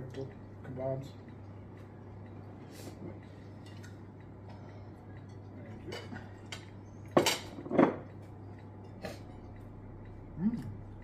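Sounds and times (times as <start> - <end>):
cutlery clinking against bowl: 5.2 - 8.2.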